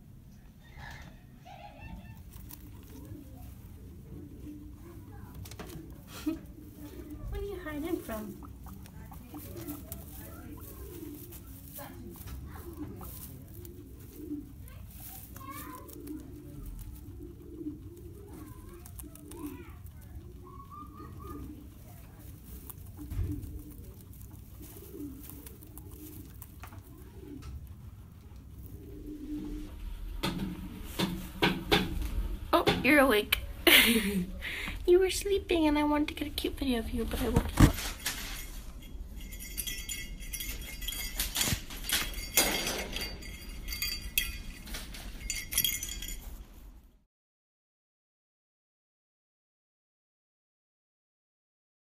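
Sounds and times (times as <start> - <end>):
rabbit gnawing at wire cage bars: 0.3 - 46.8
animal cooing calls: 0.6 - 32.7
light rustles: 33.4 - 46.6.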